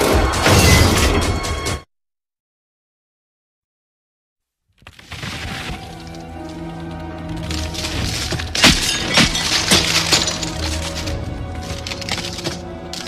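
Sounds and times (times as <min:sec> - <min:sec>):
sharp icy cracks and crunches: 0:04.8 - 0:13.0
sustained music: 0:05.6 - 0:13.0.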